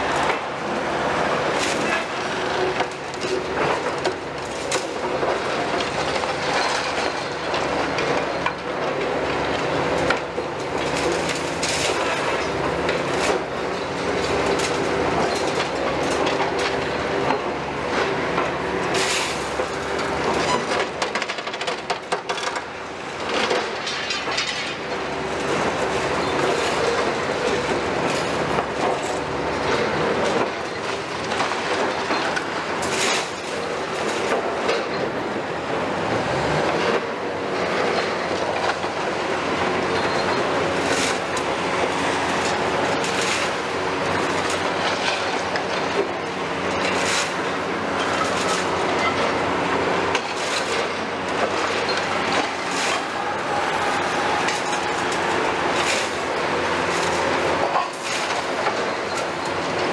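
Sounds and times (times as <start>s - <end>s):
excavator running: 0.0s - 59.9s
concrete cracking and falling: 50.1s - 59.4s.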